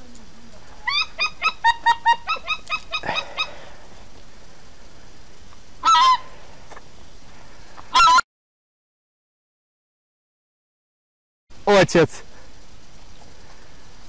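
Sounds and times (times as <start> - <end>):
geese honking: 0.8 - 3.7, 5.8 - 6.4, 7.9 - 8.2.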